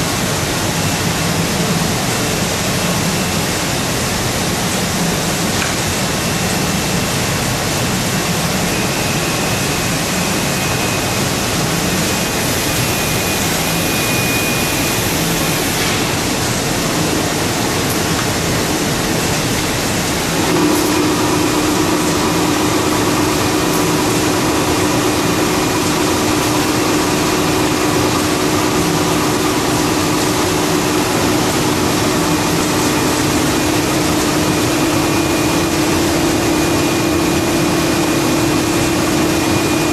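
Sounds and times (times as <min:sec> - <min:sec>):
steady hum: 0:00.0 - 0:39.9
paper cutting machine running: 0:09.8 - 0:39.9.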